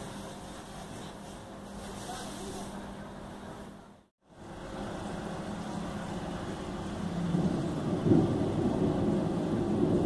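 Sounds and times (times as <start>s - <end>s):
heavy rain on flooded ground: 4.3s - 10.0s.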